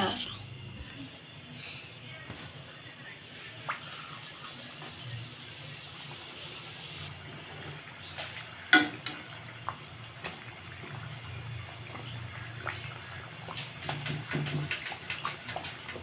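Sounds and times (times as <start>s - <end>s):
samosa sizzling in hot oil: 1.0s - 16.0s
metal spatula clanking on pan: 8.7s - 9.3s.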